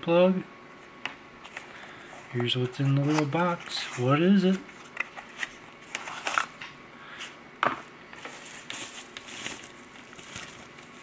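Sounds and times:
plastic bag crinkling: 0:08.3 - 0:11.0.

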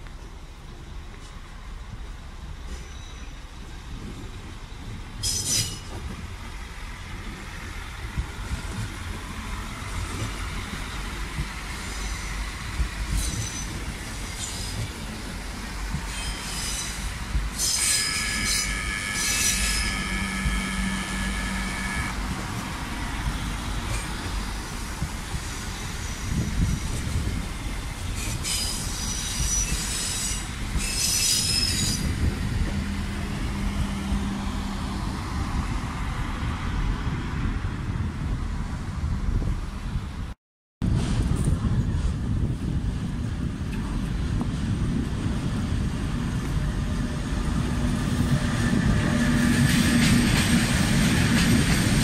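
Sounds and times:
train wheels rumbling: 0:00.0 - 0:52.0
wheel flanges squealing: 0:16.1 - 0:22.2, 0:25.5 - 0:32.4.

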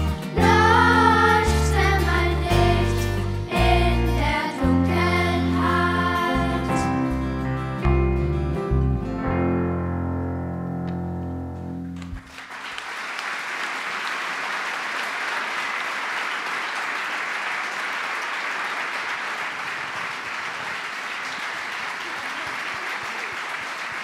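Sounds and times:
held chord with electric guitar: 0:00.0 - 0:12.2
audience applauding: 0:11.9 - 0:24.0.

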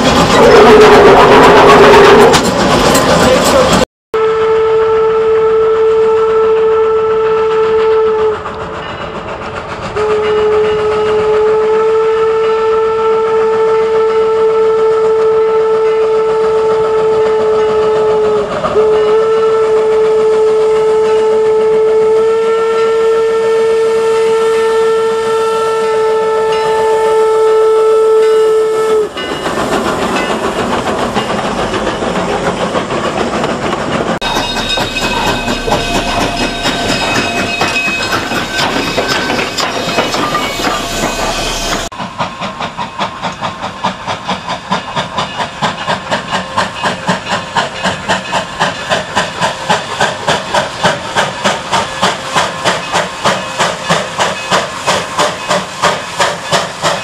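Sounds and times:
train running past: 0:00.0 - 0:03.9, 0:04.5 - 0:57.0
steam locomotive whistle: 0:00.3 - 0:02.5, 0:03.5 - 0:08.8, 0:09.9 - 0:29.4, 0:34.2 - 0:42.0, 0:46.1 - 0:57.0.

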